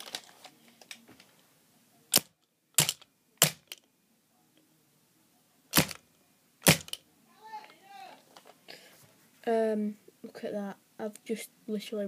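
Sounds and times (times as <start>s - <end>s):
bb gun shots cracking: 5.7s - 6.0s, 6.6s - 7.0s.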